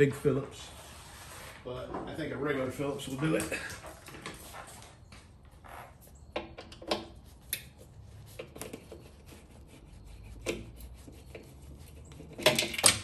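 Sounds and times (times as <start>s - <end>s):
hand tools clicking and tapping: 10.4s - 13.0s.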